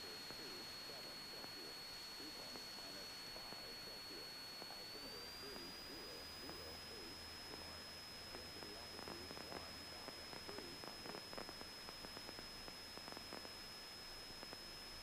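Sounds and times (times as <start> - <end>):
faint wavering tones: 0.0 - 11.8
high-pitched electrical whine: 0.0 - 15.0
soft crackles: 0.0 - 15.0.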